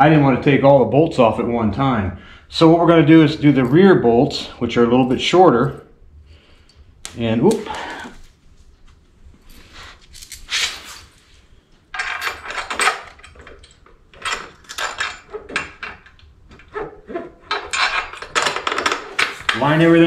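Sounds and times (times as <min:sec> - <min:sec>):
metal parts scraping and clinking: 0:09.4 - 0:20.0.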